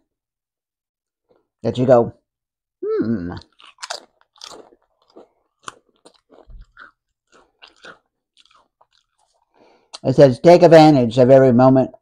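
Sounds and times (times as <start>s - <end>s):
person chewing crisp chips: 3.1s - 10.1s.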